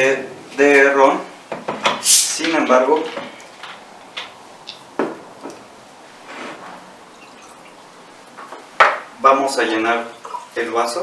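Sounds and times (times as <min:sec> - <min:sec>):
liquid pouring into a glass: 0:07.0 - 0:08.2
glassware clinking: 0:07.1 - 0:07.8.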